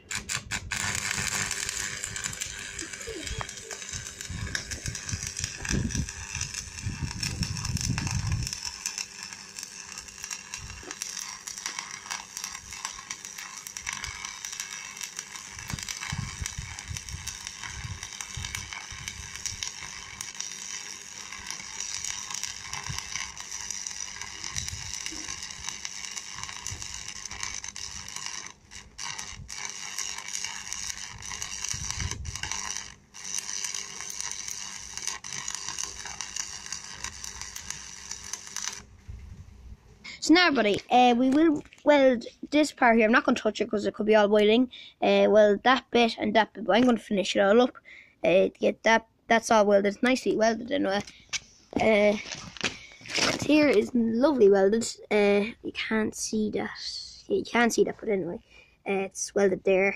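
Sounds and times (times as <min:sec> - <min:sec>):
arc welder crackling: 0:00.0 - 0:43.3, 0:49.4 - 0:58.6
low rumbling: 0:00.2 - 0:09.1.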